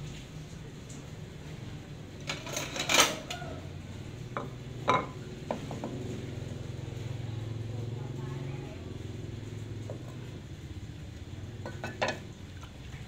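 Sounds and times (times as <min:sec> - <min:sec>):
ceramic dishes clattering: 0:02.3 - 0:03.3, 0:04.3 - 0:05.8, 0:11.6 - 0:12.3.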